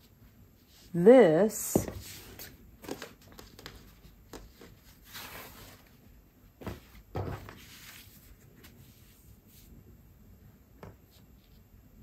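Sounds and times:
fabric rustling and sliding: 0:04.6 - 0:09.8.

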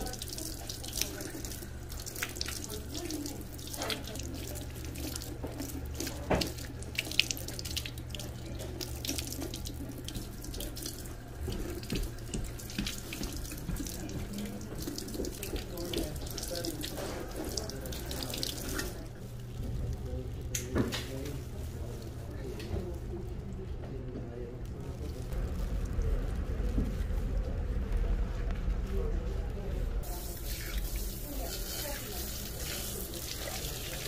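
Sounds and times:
spray head water splashing: 0:30.0 - 0:34.0.

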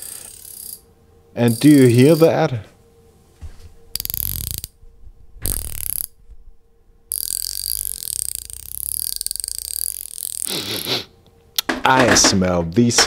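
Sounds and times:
ratchet clicking: 0:00.0 - 0:00.8, 0:04.0 - 0:04.7, 0:05.5 - 0:06.1, 0:07.1 - 0:10.5.

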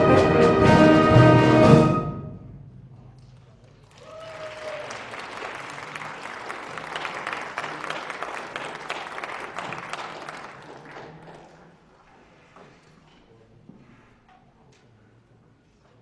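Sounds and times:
audience applauding: 0:03.6 - 0:11.7.

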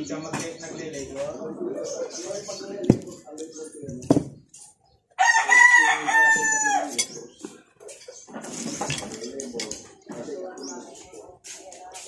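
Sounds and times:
rooster crowing: 0:05.2 - 0:06.9.

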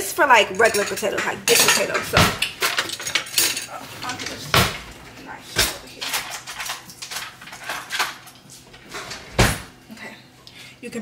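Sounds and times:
utensils clattering: 0:00.2 - 0:09.7.

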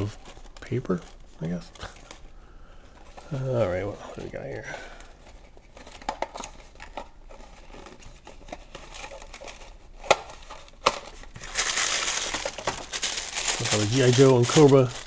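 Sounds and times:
paper crinkling: 0:03.0 - 0:15.0.

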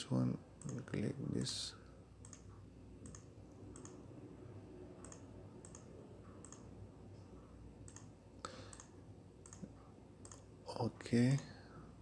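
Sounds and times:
low room hum: 0:00.0 - 0:12.0
computer mouse clicking: 0:00.6 - 0:00.9, 0:02.2 - 0:04.0, 0:05.0 - 0:06.7, 0:07.8 - 0:10.5.

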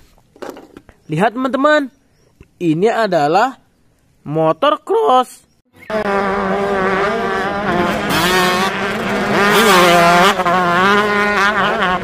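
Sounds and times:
dirt bike engines revving: 0:05.8 - 0:12.0.

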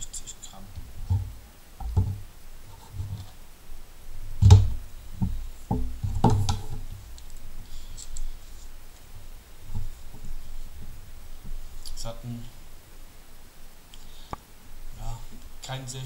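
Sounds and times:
knocks and clunks on a tabletop: 0:01.1 - 0:02.2, 0:04.4 - 0:06.8.

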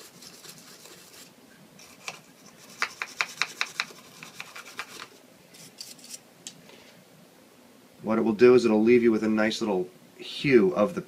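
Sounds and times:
toothbrush scrubbing plastic: 0:00.0 - 0:05.1.

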